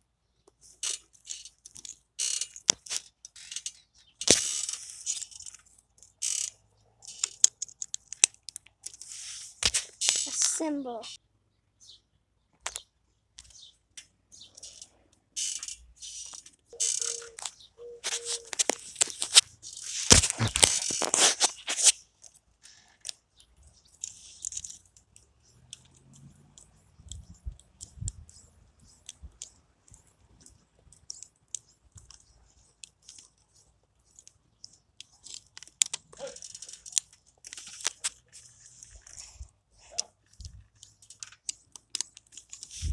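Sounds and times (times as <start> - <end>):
plastic pieces clicking and snapping: 0.8 - 10.6, 34.1 - 39.3, 40.0 - 42.9.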